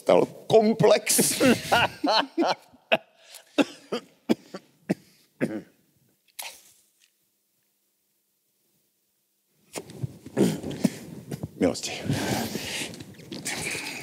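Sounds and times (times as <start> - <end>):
man coughing: 1.2 - 2.5, 3.5 - 5.8.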